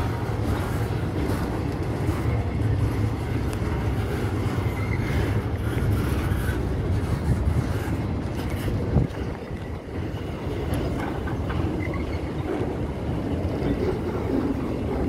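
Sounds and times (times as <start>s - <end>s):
faint clicks of train wheels: 0.0s - 15.0s
freight train wheels rumbling on rails: 0.0s - 15.0s.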